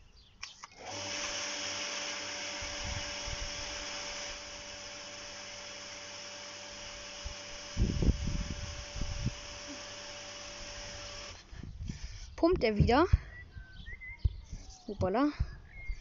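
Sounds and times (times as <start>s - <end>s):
garden pump humming: 0.5s - 13.0s
water hissing from spray gun: 0.9s - 11.5s.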